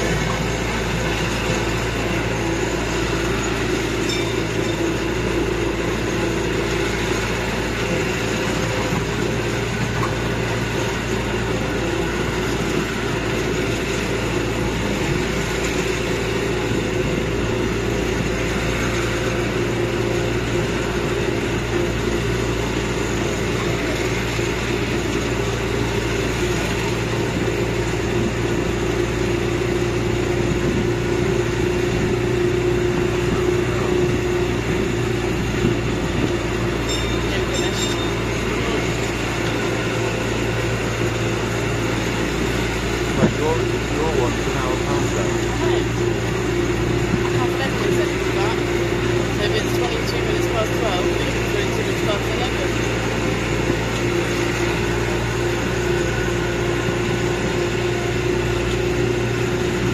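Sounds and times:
road noise: 0:00.0 - 0:59.9
vehicle engine droning: 0:00.0 - 0:59.9.

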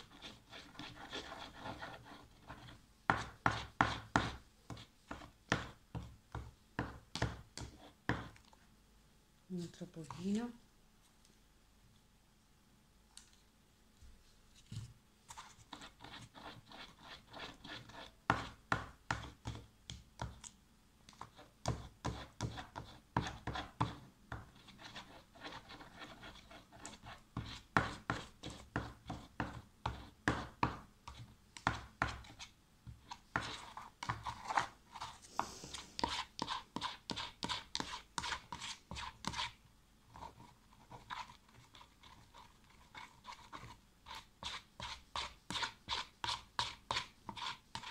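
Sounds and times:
metal spoon stirring slime in tub: 0:15.3 - 0:47.9.

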